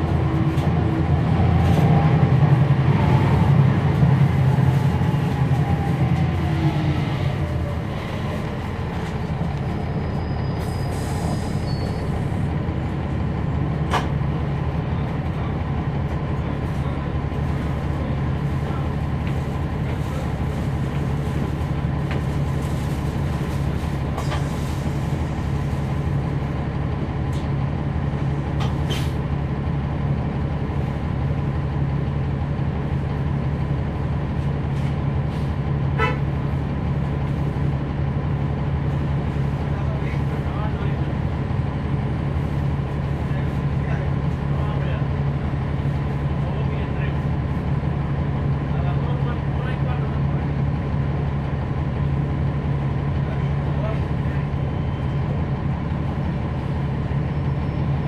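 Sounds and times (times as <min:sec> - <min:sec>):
bus diesel engine droning: 0:00.0 - 0:58.0
cabin and road noise: 0:00.0 - 0:58.0.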